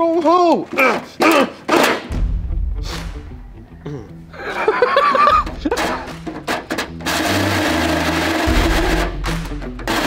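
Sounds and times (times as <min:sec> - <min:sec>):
background music with bass line: 0:02.1 - 0:10.0
people laughing: 0:03.9 - 0:06.2
power drill starting: 0:06.5 - 0:10.0.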